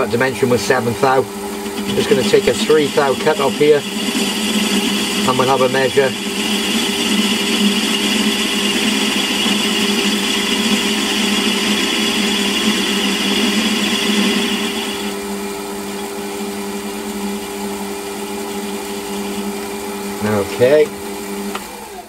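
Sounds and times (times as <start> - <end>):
metal lathe humming: 0.0 - 22.0
high-pitched cutting sound: 1.8 - 15.1.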